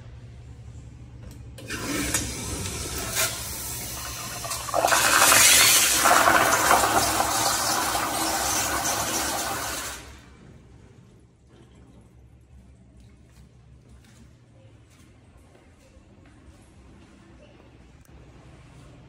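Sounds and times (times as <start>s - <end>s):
toilet flushing: 1.6s - 10.4s.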